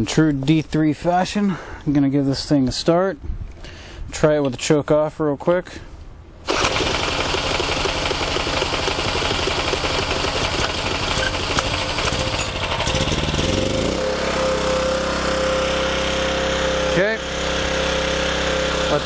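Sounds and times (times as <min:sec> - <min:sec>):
generator high whine: 0:06.5 - 0:19.0
small generator engine running: 0:06.5 - 0:19.0.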